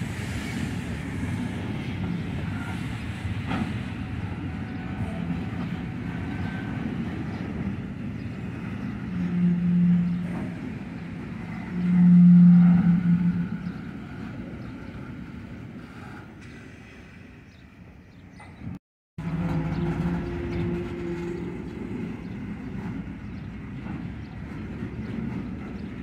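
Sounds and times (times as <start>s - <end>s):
train wheels rumbling on rails: 0.0s - 26.0s
low droning horn tones: 9.1s - 10.6s, 11.5s - 14.0s, 19.2s - 21.7s.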